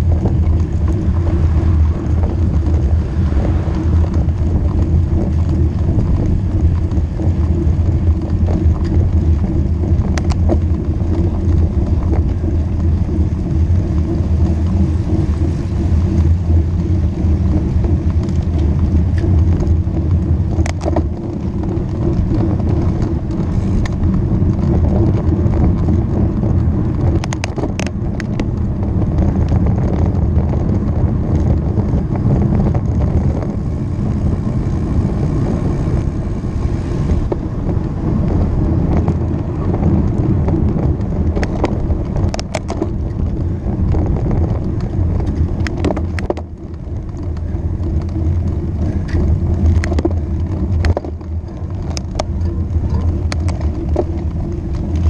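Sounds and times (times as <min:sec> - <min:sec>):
tyre and road noise: 0:00.0 - 0:55.0
wind rumble on microphone: 0:00.0 - 0:55.0.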